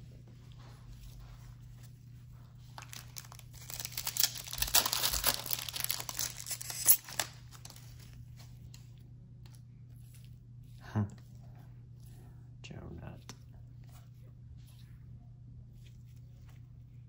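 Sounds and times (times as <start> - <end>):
foil wrapper crinkling and tearing: 2.7 - 8.2.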